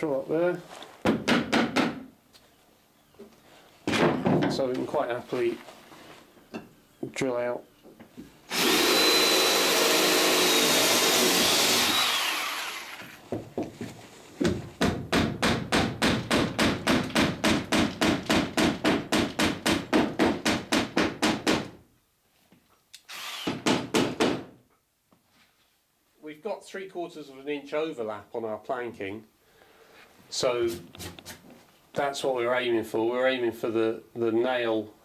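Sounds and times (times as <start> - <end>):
cordless drill motor whining: 8.5 - 13.2, 23.1 - 23.5.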